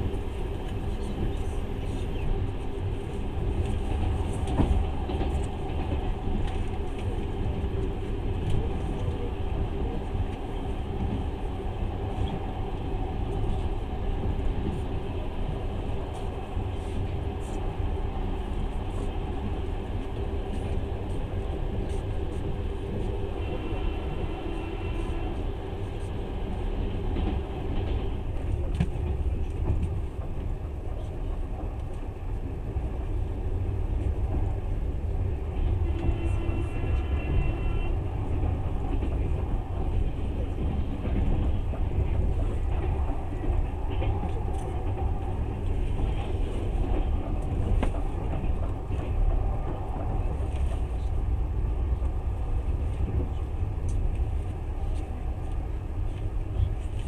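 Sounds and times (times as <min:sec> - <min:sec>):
freight train passing: 0:00.0 - 0:57.0
train rumbling on rails: 0:00.0 - 0:57.0.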